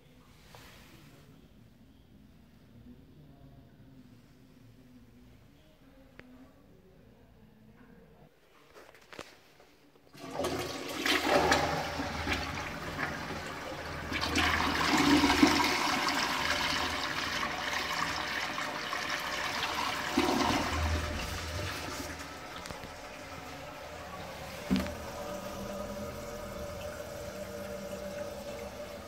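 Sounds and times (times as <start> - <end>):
toilet flushing: 10.1 - 29.0.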